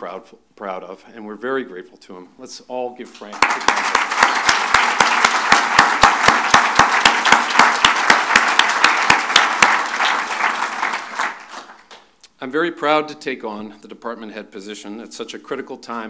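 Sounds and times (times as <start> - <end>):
close hand claps: 3.3 - 12.2
audience applauding: 3.4 - 12.0.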